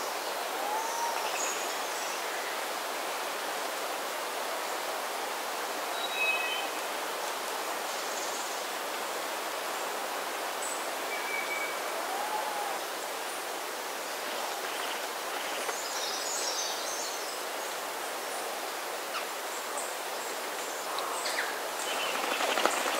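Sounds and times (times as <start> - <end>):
rushing forest ambience: 0.0 - 22.9
faint bird calls: 11.2 - 13.0.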